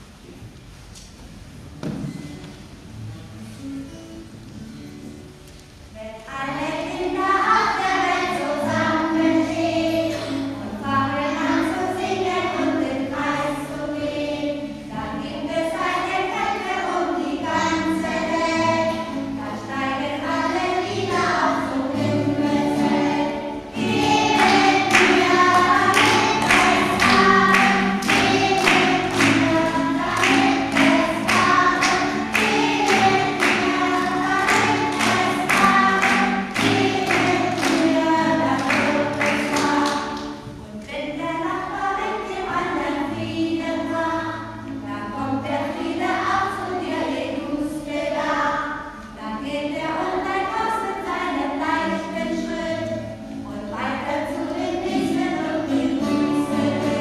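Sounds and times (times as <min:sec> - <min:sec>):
group of voices singing: 0:07.1 - 0:40.3, 0:45.1 - 0:57.0
strummed acoustic guitar: 0:07.4 - 0:13.0, 0:16.9 - 0:40.8, 0:54.4 - 0:57.0.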